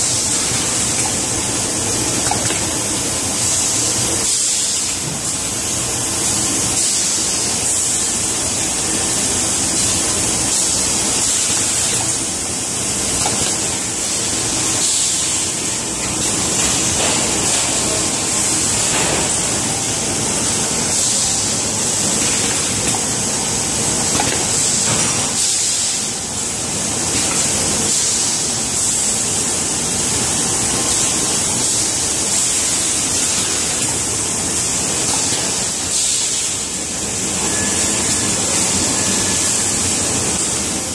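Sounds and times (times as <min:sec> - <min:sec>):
machine hiss: 0:00.0 - 0:40.9.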